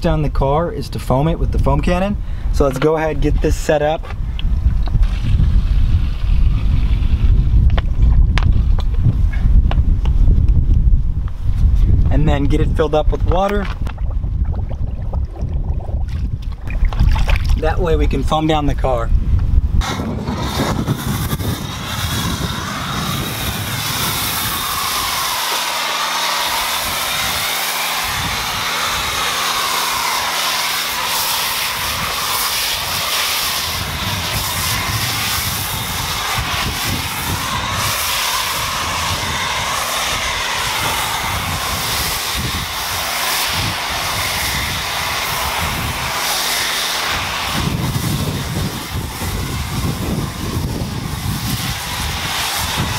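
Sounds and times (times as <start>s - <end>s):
pressure washer spray hiss: 5.0s - 7.6s, 19.8s - 52.9s
pump motor hum: 13.4s - 17.7s, 19.8s - 52.9s.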